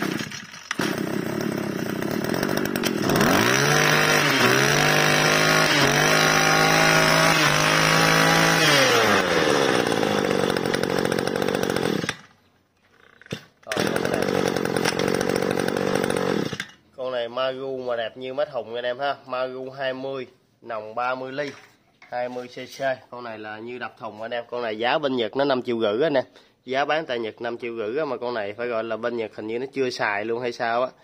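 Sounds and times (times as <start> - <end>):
pull-start cord: 0.0 - 3.3, 10.2 - 12.4, 13.0 - 16.8
brush-cutter engine revving and idling: 0.0 - 12.3, 13.3 - 16.8.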